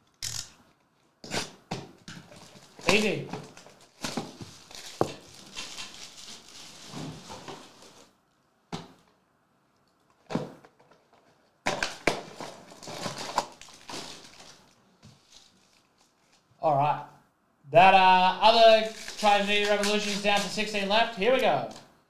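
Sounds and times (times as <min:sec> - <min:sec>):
plastic wrapping crinkling: 0:02.2 - 0:08.2, 0:10.8 - 0:16.5, 0:18.4 - 0:21.8.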